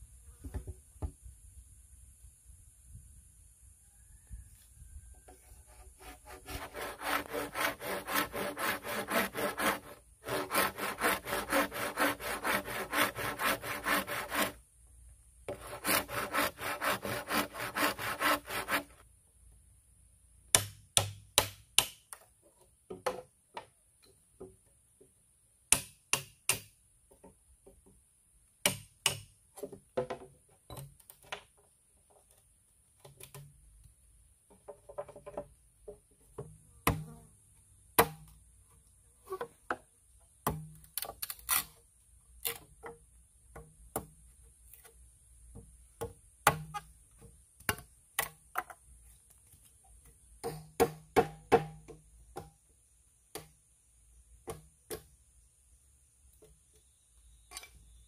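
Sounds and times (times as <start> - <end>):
hand saw cutting bamboo: 5.6 - 14.6, 15.5 - 19.0.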